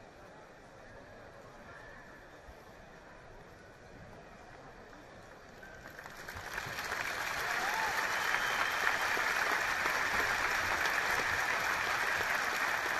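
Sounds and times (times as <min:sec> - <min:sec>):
crowd applauding: 0:05.9 - 0:12.9.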